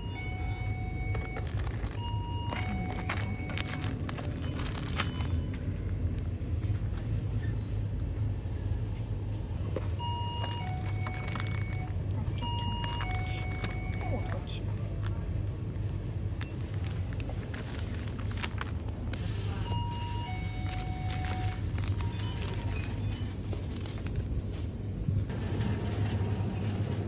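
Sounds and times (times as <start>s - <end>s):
low refrigeration hum: 0.0s - 27.0s
plastic packets crinkling: 1.0s - 7.3s, 10.3s - 15.2s, 15.8s - 19.2s, 20.3s - 24.4s.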